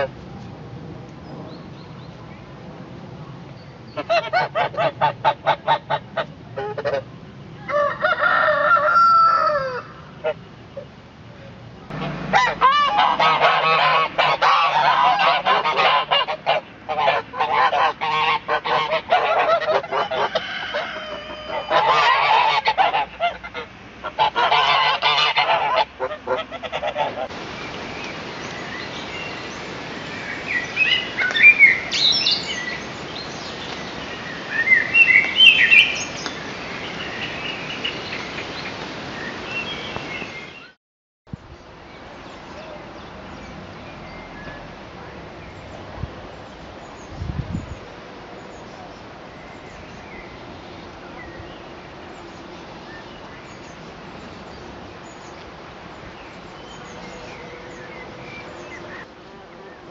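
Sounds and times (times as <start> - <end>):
geese honking: 4.0 - 7.1, 11.9 - 27.3
birds chirping: 9.9 - 23.2, 24.2 - 40.8, 41.9 - 59.9.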